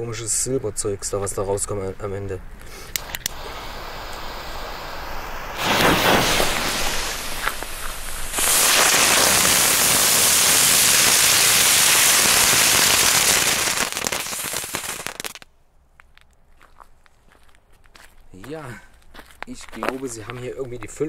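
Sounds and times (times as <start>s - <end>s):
fireworks hissing spray of sparks: 2.6s - 15.4s.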